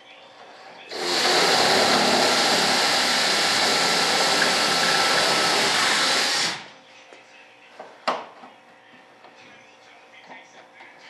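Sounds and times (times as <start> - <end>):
electric air tool whirring: 0.9 - 6.7.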